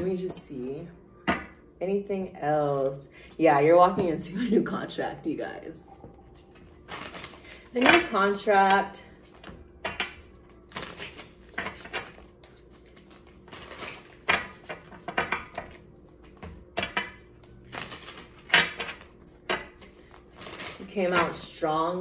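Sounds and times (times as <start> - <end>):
cards shuffling and snapping: 6.4 - 7.5, 9.3 - 16.6, 17.5 - 21.2.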